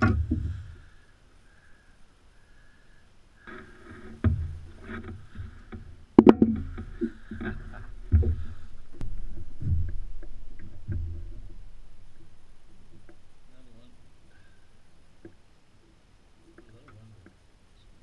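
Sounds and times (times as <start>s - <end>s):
knocks and thumps on a boat: 0.0s - 0.8s, 3.5s - 12.3s
low rumbling handling noise: 0.0s - 1.0s, 3.4s - 17.4s.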